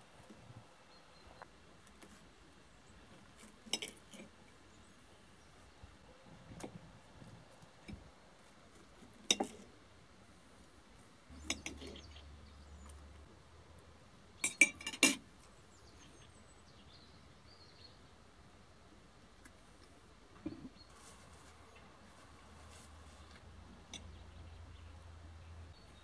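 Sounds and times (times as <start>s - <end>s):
knife and fork clinking on plate: 14.4s - 15.2s.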